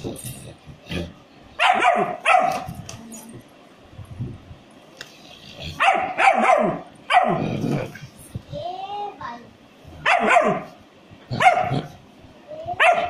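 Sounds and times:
puppy barking: 1.6 - 2.7, 5.8 - 7.4, 10.0 - 10.8, 11.4 - 11.9, 12.7 - 13.0.

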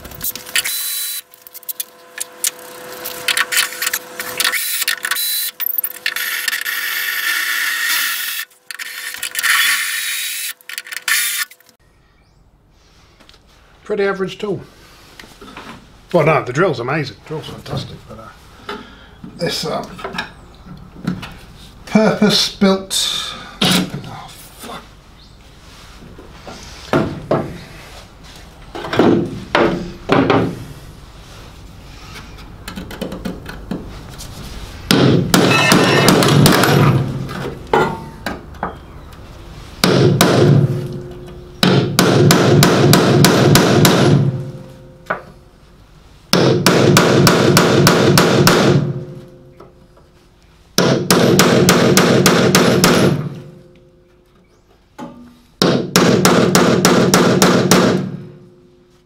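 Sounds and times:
hammer blows on sheet steel: 39.8 - 45.0, 46.3 - 49.2.

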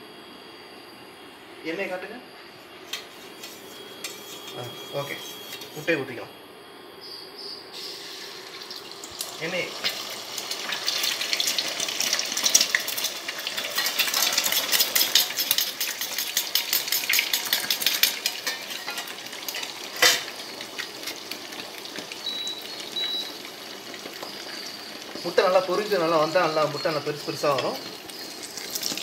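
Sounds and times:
cooktop touch panel beeps: 0.0 - 8.0, 18.4 - 29.0
eggs sizzling in hot oil: 7.7 - 29.0.

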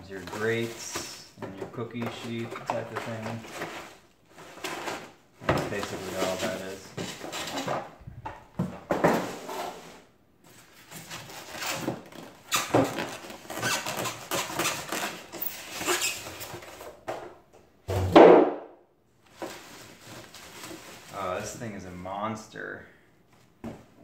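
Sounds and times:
cardboard and foam packaging handled: 0.0 - 17.1, 19.2 - 21.8.

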